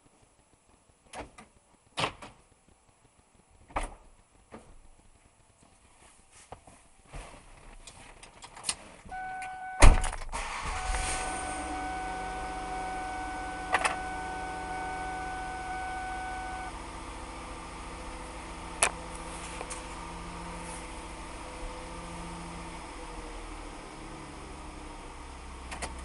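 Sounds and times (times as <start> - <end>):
electronic warning tone: 9.1 - 10.0, 10.7 - 16.8
car engine idling: 9.1 - 26.0.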